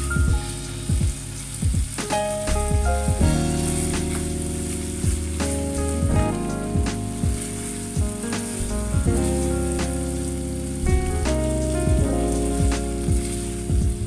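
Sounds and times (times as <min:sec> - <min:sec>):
background music with bass beat: 0:00.0 - 0:14.0
stew sizzling in a frying pan: 0:03.1 - 0:10.8, 0:11.6 - 0:14.0.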